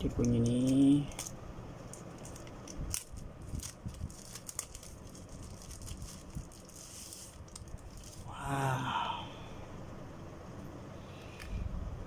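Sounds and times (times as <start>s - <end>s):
plastic sleeve rustling: 1.9s - 8.3s.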